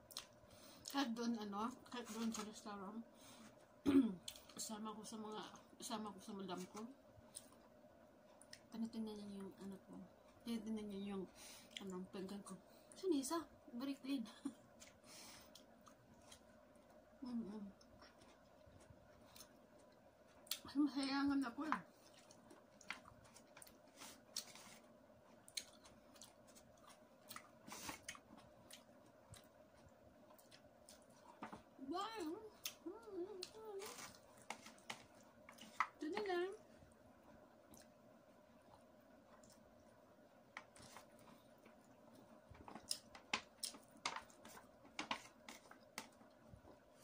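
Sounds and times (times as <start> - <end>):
faint steady hum: 0.0 - 47.0
person chewing: 22.0 - 31.4, 37.2 - 38.0.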